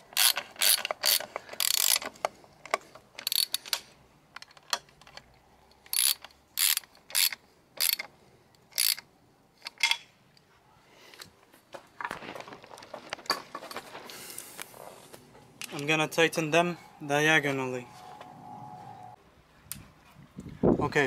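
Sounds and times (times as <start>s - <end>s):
socket ratchet clicking: 0.0s - 3.8s, 4.4s - 9.0s.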